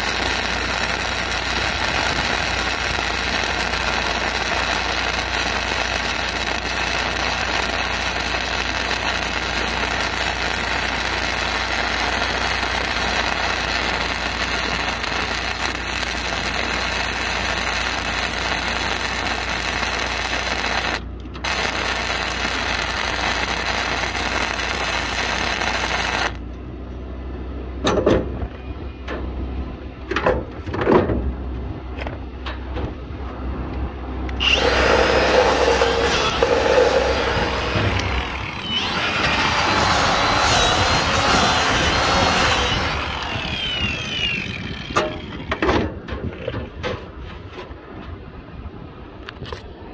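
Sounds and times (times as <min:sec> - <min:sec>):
angle grinder grinding: 0:00.0 - 0:26.4, 0:34.4 - 0:45.6
welding arc crackling hiss: 0:00.0 - 0:26.4, 0:34.4 - 0:45.0.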